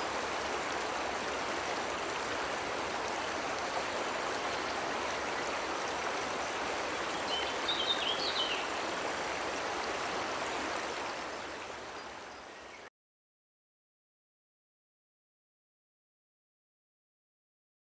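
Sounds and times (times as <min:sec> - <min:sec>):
waterfall rushing: 0:00.0 - 0:12.3
bird chirping: 0:07.1 - 0:08.7.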